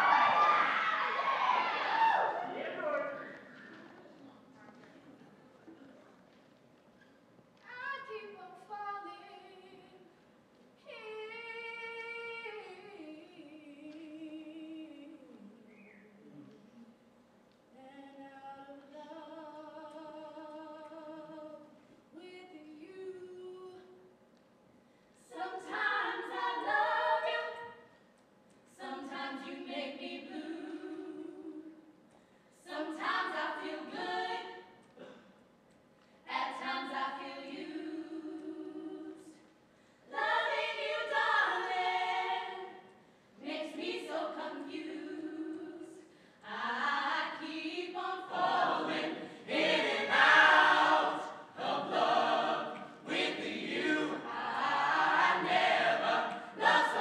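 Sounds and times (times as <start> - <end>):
vocal ensemble singing: 0.0 - 3.5, 25.2 - 27.9, 28.7 - 32.0, 32.6 - 35.2, 36.2 - 57.0.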